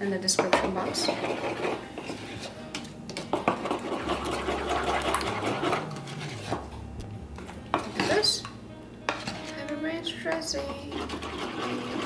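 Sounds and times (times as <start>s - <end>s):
spoon scraping wooden bowl: 0.6s - 6.8s, 7.4s - 8.5s, 9.1s - 9.6s, 10.5s - 12.0s.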